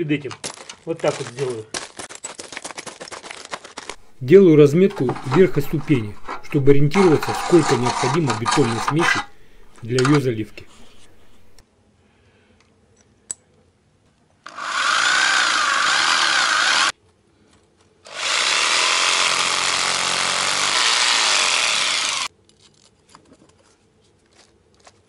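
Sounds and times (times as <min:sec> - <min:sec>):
electric drill boring into concrete: 0:04.9 - 0:11.6, 0:14.5 - 0:16.9, 0:18.1 - 0:22.3.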